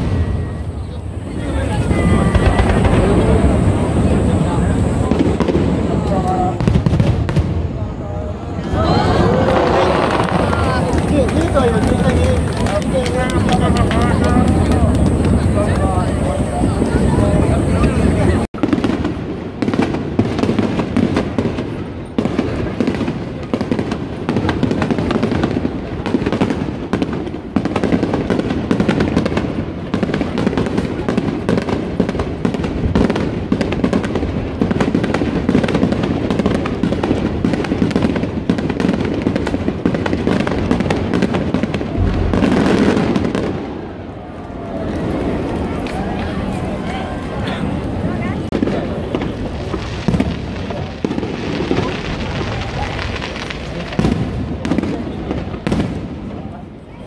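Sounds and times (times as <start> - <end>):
fireworks bangs and crackling: 0.0 - 57.0
low fireworks booms: 0.0 - 57.0.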